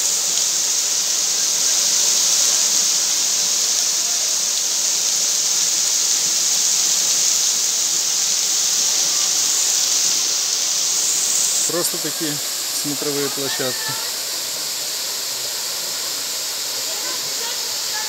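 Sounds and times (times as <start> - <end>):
waterfall rushing into pool: 0.0 - 18.0.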